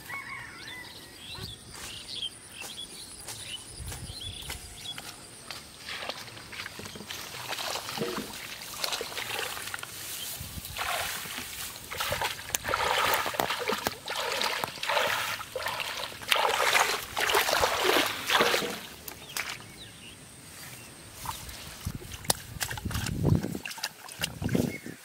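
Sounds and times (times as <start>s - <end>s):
hands splashing in muddy water: 5.8s - 19.6s, 21.2s - 25.0s.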